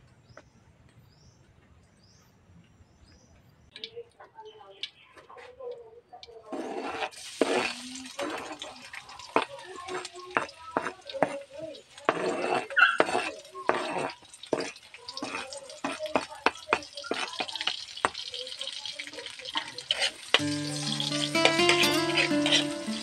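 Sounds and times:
light sizzle of frying: 3.7s - 23.0s
metal spoon scraping board: 6.5s - 8.6s, 12.0s - 16.2s, 21.6s - 23.0s
spoon clattering against wok: 12.9s - 23.0s
music: 20.4s - 23.0s.

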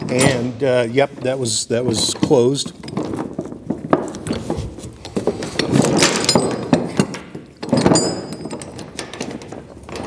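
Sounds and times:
chain links rattling: 5.2s - 10.0s.

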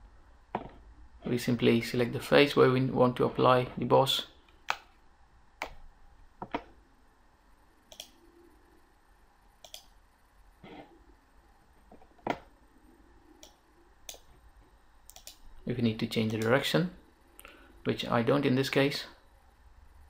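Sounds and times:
faint room hiss: 0.0s - 20.0s
computer mouse clicking: 7.9s - 8.2s, 9.6s - 9.9s, 13.4s - 14.3s, 15.1s - 15.4s.

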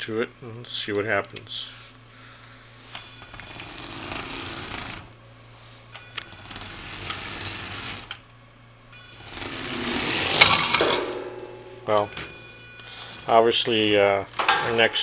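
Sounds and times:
toy car motors whirring: 3.4s - 5.1s, 6.2s - 8.2s.

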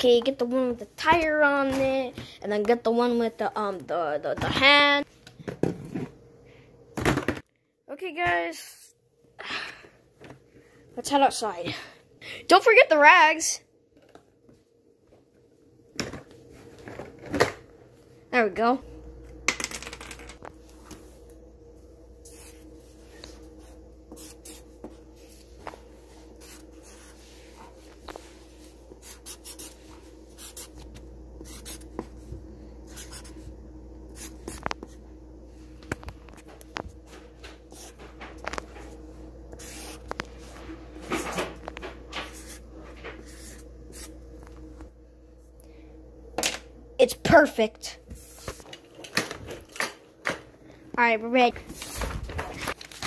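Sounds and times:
faint steady hum: 0.0s - 53.0s
marker strokes on paper: 22.2s - 25.5s, 26.4s - 27.7s, 29.0s - 32.1s, 39.6s - 40.5s, 43.2s - 44.1s.

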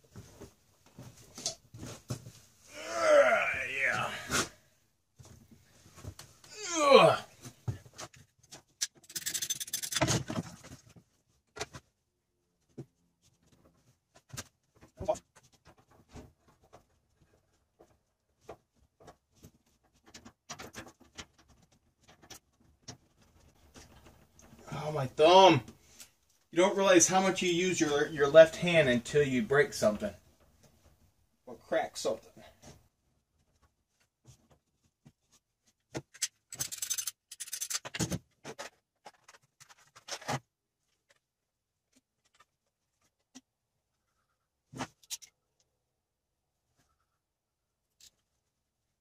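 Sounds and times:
tools rattling in plastic toolbox: 36.1s - 40.4s.

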